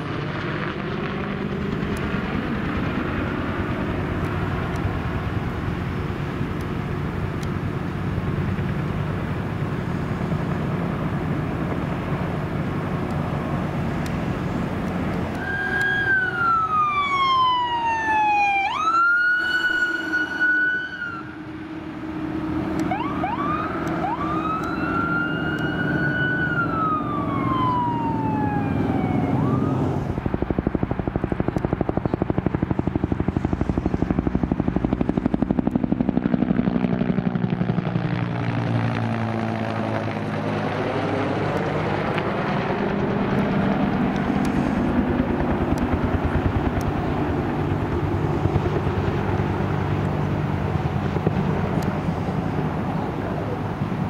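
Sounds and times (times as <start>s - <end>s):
fire engine motor: 0.0s - 54.0s
fire engine siren wailing: 0.0s - 54.0s
helicopter rotor beating: 0.0s - 54.0s.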